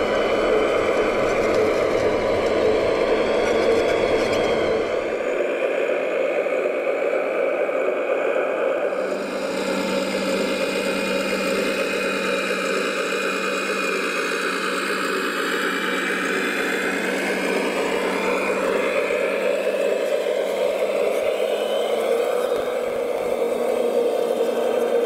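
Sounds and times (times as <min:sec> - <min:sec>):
model truck motor whirring: 0:08.7 - 0:25.0.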